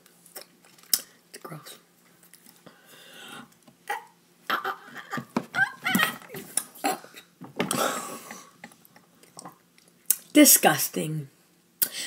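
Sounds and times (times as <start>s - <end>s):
long breathy blast: 2.7s - 3.5s
boy groaning and gagging: 3.9s - 8.3s.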